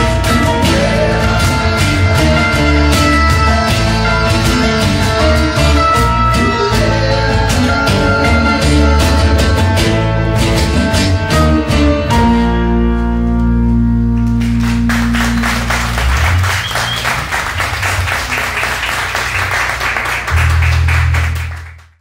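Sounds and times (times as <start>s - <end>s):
applause: 14.2s - 22.0s.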